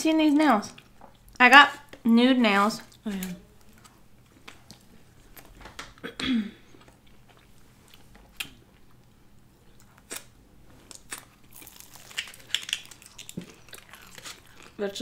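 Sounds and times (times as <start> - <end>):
chewing crunchy pastry: 6.6 - 15.0.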